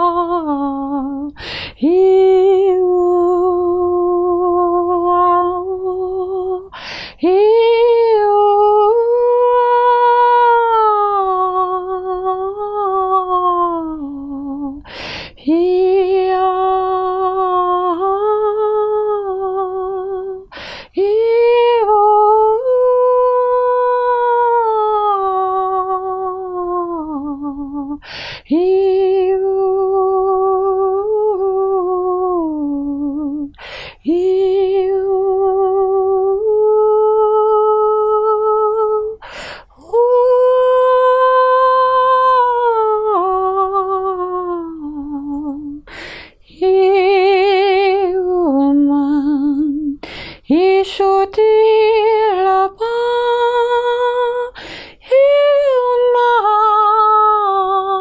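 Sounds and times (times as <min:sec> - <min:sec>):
person humming: 0:00.0 - 0:51.6.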